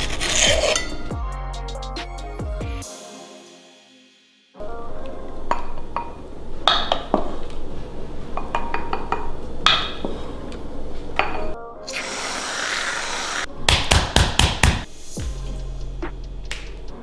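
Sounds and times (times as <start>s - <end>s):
spoon scraping against glass: 0.0s - 1.1s
background music: 0.0s - 17.0s
aerosol can hiss: 11.9s - 13.5s.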